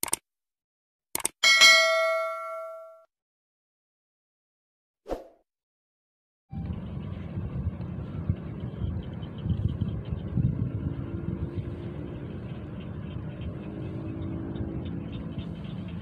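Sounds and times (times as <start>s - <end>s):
faint engine hum: 6.5s - 16.0s
wind rumble on microphone: 6.5s - 16.0s.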